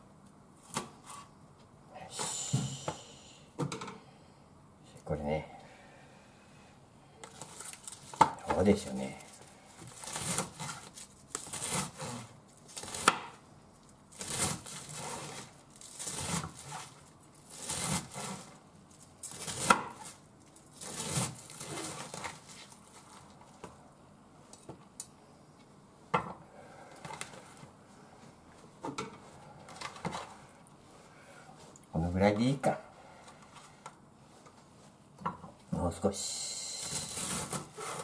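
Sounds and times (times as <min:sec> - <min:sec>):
knife slicing cabbage on board: 0:09.9 - 0:13.4, 0:14.2 - 0:18.5, 0:19.3 - 0:20.2, 0:20.8 - 0:22.3.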